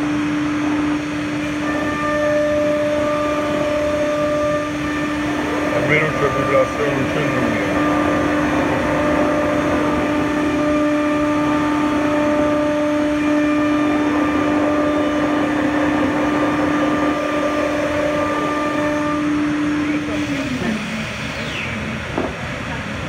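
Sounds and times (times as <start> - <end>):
router spindle high whine: 0.0 - 22.2
cutting and dust extraction rush: 3.0 - 12.5.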